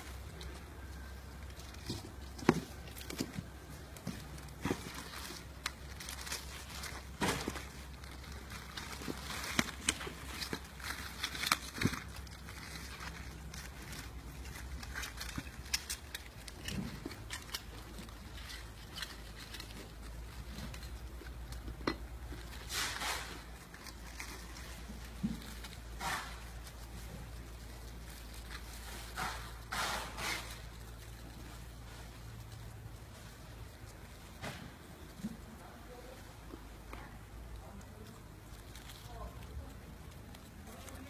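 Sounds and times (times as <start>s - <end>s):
plastic bags crinkling: 0.0s - 36.4s
small metal clicks and knocks: 8.8s - 22.5s.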